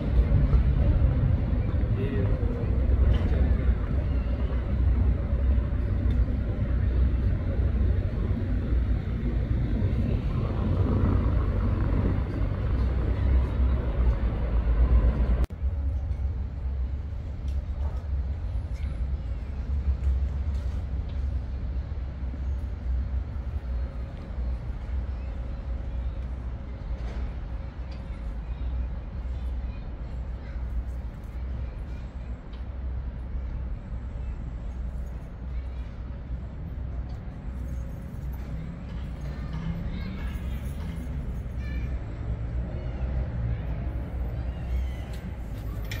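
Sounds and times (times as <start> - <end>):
heavy low rumble: 0.0 - 28.6
road traffic: 0.0 - 46.0.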